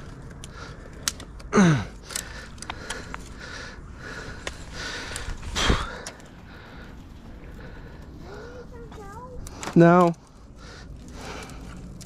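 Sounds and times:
dry twigs snapping: 0.0s - 8.0s, 9.4s - 12.0s
man breathing hard: 0.4s - 8.8s, 10.3s - 12.0s
man groaning: 1.5s - 1.9s.

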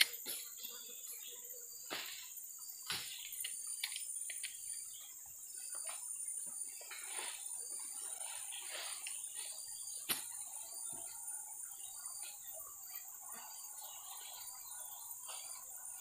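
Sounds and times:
high-pitched insect drone: 0.0s - 16.0s
rustles: 5.7s - 11.2s.

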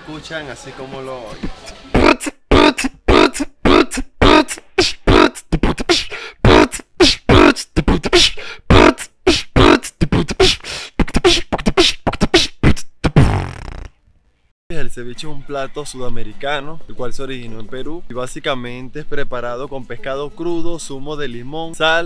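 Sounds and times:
beatboxing: 1.4s - 13.9s.

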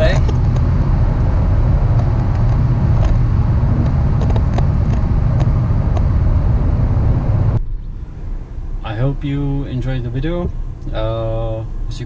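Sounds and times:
car engine and road drone: 0.0s - 12.0s.

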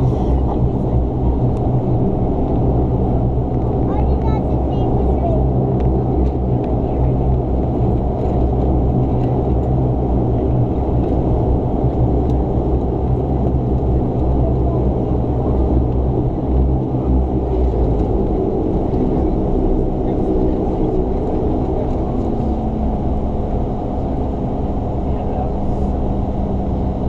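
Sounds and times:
turboprop engine drone: 0.0s - 27.0s.

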